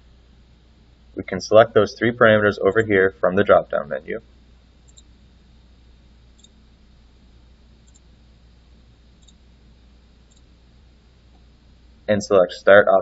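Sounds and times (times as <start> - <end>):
low steady hum and hiss: 0.0 - 13.0
computer mouse clicks: 4.9 - 5.1, 6.4 - 6.6, 7.8 - 8.1, 9.2 - 9.4.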